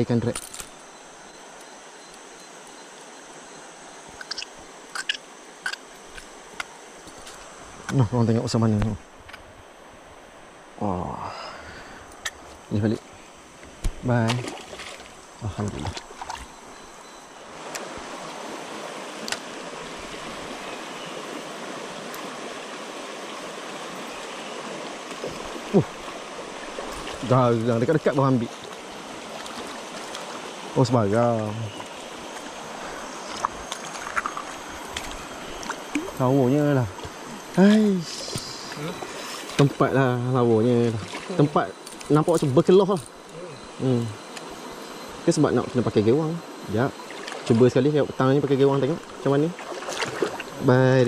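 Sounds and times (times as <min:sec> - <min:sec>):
river water rushing: 0:09.6 - 0:51.0.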